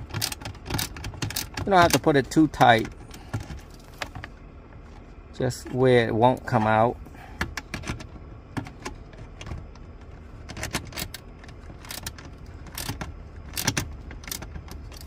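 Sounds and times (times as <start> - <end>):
socket wrench clicking and rattling: 0.0 - 2.1, 11.8 - 15.0.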